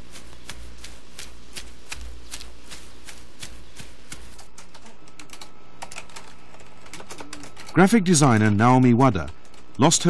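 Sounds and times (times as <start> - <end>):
footsteps running on grass: 0.0 - 4.4
low steady hum: 0.0 - 10.0.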